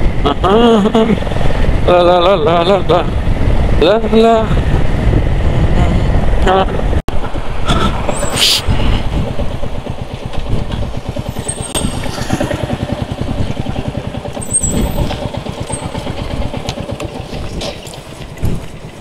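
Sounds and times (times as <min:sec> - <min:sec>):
motorcycle engine idling: 0:09.0 - 0:19.0.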